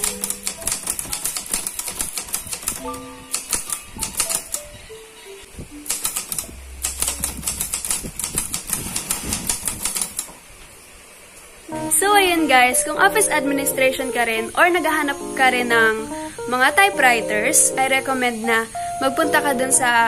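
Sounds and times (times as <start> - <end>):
typewriter typebars clacking: 0.0 - 4.7, 5.8 - 10.3
soft background music: 0.0 - 8.1, 11.7 - 20.0.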